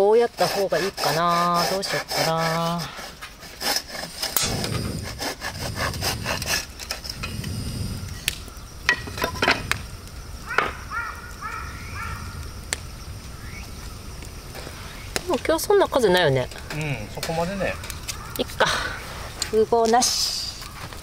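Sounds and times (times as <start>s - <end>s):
sharp clicks: 7.1s - 8.6s.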